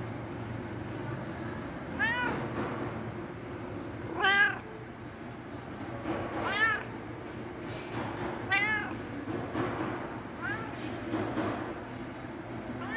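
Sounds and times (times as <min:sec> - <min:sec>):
cat meowing: 0:02.0 - 0:02.5, 0:04.1 - 0:04.8, 0:06.4 - 0:07.0, 0:08.4 - 0:09.1, 0:10.4 - 0:10.9.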